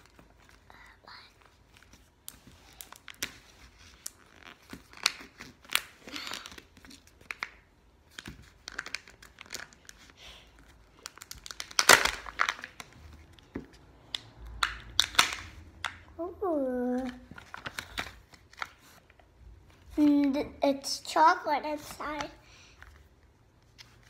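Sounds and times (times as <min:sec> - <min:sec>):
wrapper crinkling and tearing: 0:02.2 - 0:13.1, 0:17.0 - 0:19.0.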